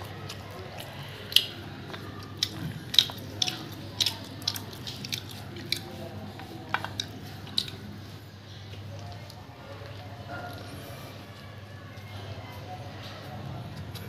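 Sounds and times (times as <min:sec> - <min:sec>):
person chewing with mouth smacks: 0:00.0 - 0:11.1.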